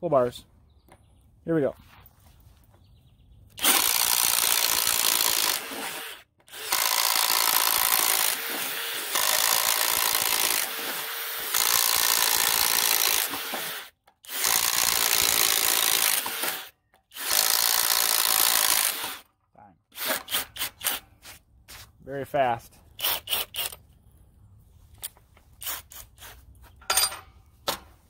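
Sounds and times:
impact driver boring wood: 3.6 - 19.3, 20.0 - 21.0.

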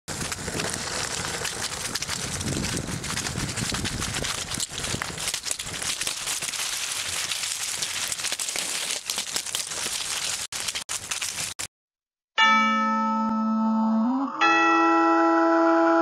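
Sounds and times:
dry leaves rustling and crackling: 0.1 - 11.7.

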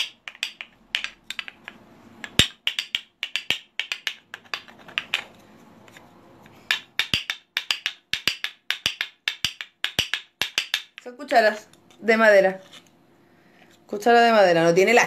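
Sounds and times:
wooden spoons clacking: 0.0 - 12.0.

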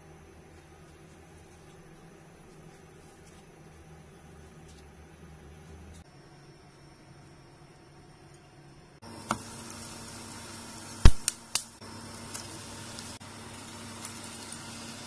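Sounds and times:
pancakes sizzling in oil: 9.1 - 15.0.

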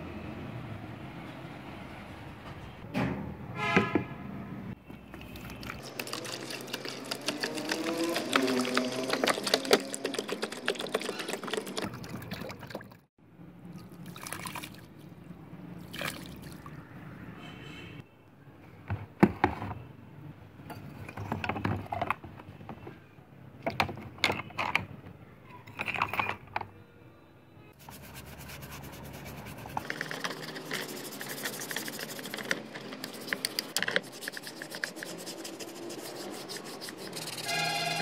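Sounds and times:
hand brush scrubbing: 5.4 - 12.2, 27.8 - 38.0.

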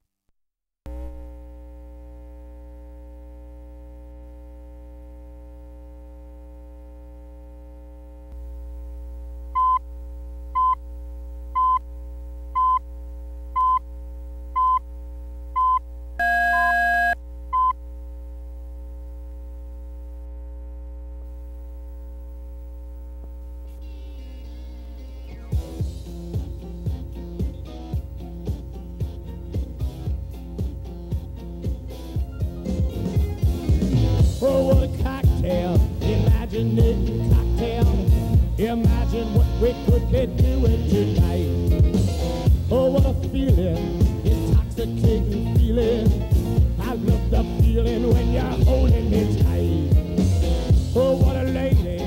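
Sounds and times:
steady electrical hum: 0.9 - 52.0
short test-tone beeps: 15.6 - 17.8
two-pitch tone: 15.6 - 17.8.

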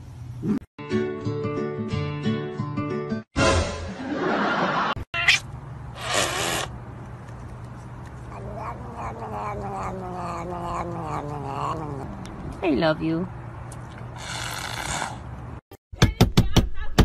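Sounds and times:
cat crying: 5.2 - 5.5, 8.2 - 12.2.

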